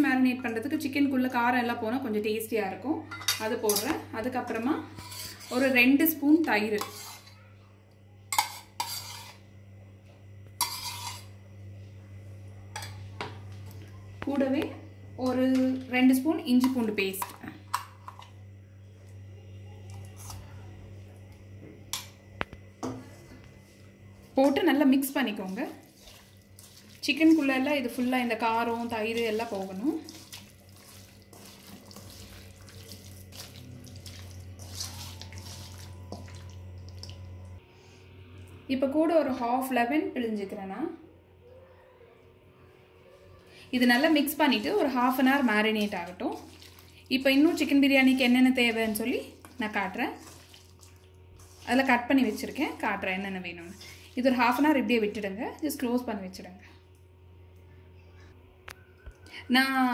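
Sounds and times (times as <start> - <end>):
steady low hum: 0.0 - 59.9
spoon scraping steel bowl: 4.8 - 5.9, 6.5 - 7.4, 8.4 - 9.4, 10.6 - 11.4, 25.3 - 36.3, 48.7 - 54.9
wet squelching of kneaded meat: 25.2 - 37.6, 44.0 - 54.7.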